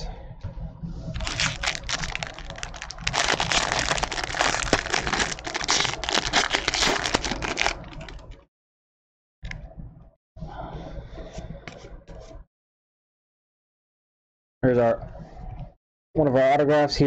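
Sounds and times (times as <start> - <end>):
foil wrapper tearing and crinkling: 1.2 - 8.3.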